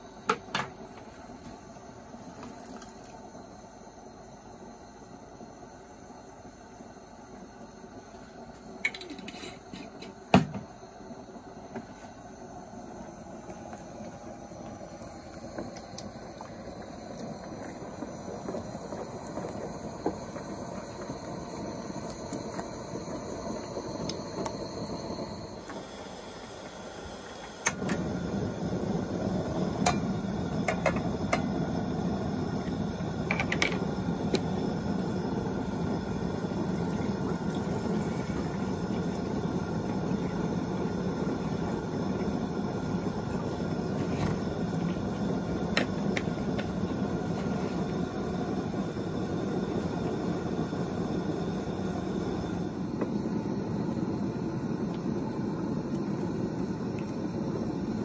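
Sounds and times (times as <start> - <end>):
stove burners hissing: 0.0 - 58.0
utensils clicking on pot: 8.8 - 10.1, 33.2 - 34.4.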